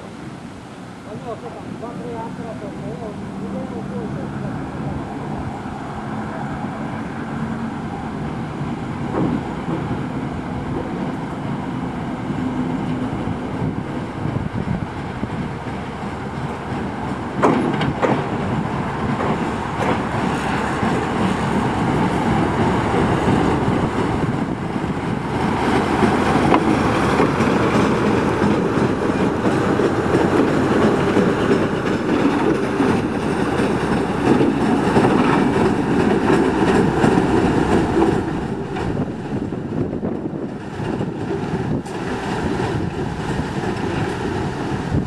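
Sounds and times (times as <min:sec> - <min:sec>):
diesel locomotive engine running: 0:02.1 - 0:45.0
wheels clicking over rail joints: 0:08.3 - 0:11.6, 0:12.6 - 0:45.0.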